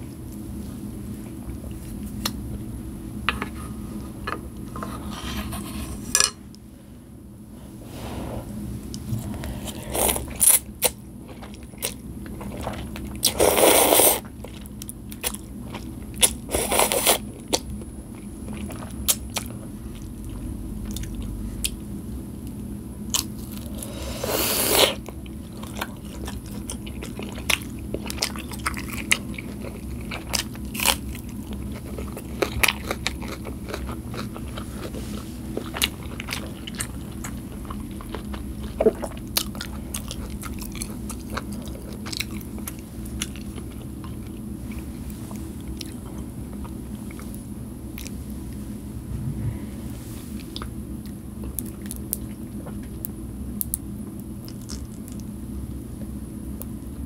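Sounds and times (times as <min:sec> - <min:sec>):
wet chewing: 0:24.7 - 0:48.2.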